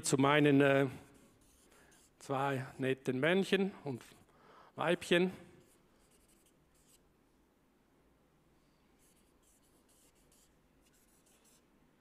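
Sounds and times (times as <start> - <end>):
marker scratching on paper: 0.5 - 2.7, 5.6 - 7.0, 9.0 - 11.6.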